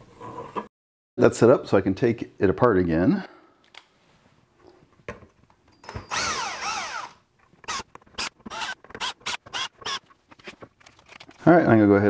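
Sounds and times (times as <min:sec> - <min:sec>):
cordless drill motor whine: 0:05.9 - 0:10.0.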